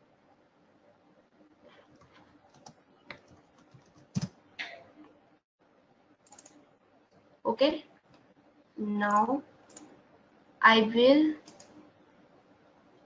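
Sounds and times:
keyboard typing: 0:01.7 - 0:05.1, 0:06.2 - 0:07.3, 0:08.9 - 0:10.0, 0:11.4 - 0:11.9.

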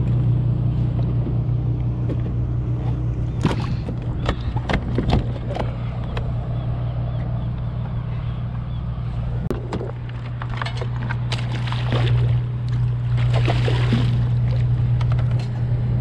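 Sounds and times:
steady low hum: 0:00.0 - 0:16.0
ray splashing in water: 0:11.2 - 0:14.7.

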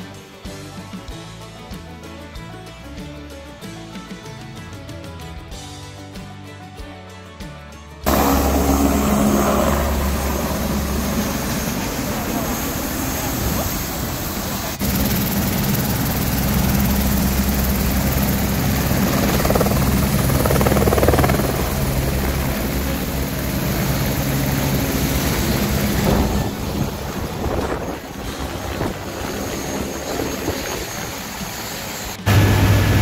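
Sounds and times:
helicopter flying low: 0:08.1 - 0:33.0.

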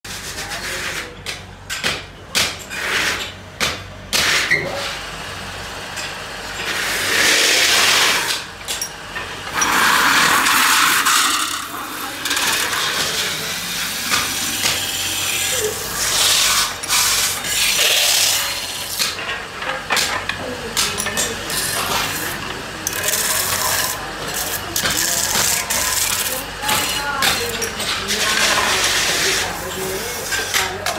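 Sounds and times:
tool scraping spinning metal: 0:06.6 - 0:19.1, 0:21.1 - 0:30.6
lathe running: 0:09.4 - 0:19.0.

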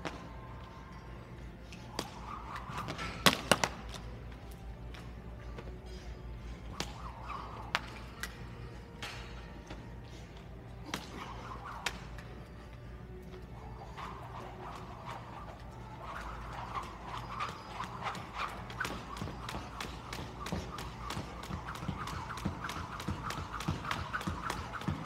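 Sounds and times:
jump rope smacking wooden floor: 0:18.1 - 0:25.0.

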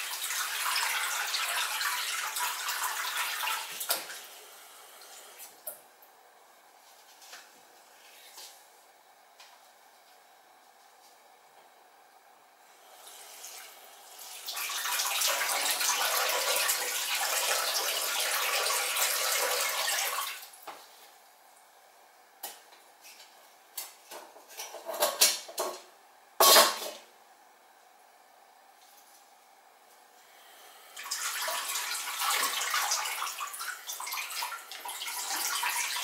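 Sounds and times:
pots knocking and clinking in sink: 0:26.4 - 0:27.1.

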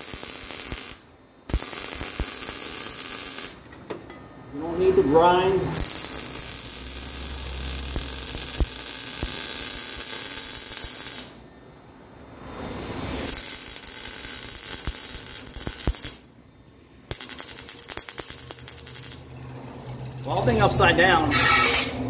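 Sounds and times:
arc welding crackling and hissing: 0:00.0 - 0:03.7, 0:05.7 - 0:11.4, 0:13.0 - 0:16.3, 0:17.1 - 0:19.3.

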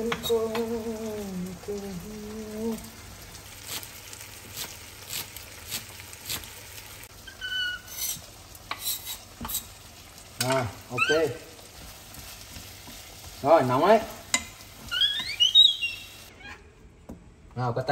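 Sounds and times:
frying pan sizzle: 0:00.0 - 0:16.3
short high squeak: 0:07.2 - 0:08.2, 0:14.9 - 0:16.7.

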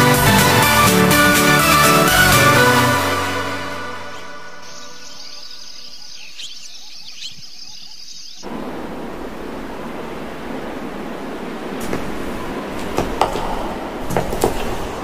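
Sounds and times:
faint high chirping: 0:03.8 - 0:08.5.

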